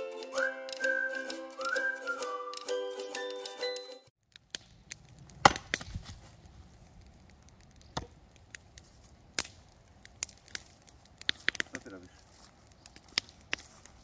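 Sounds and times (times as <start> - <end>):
axe chopping log: 5.4 - 6.0
small clicks of wood: 10.2 - 11.9.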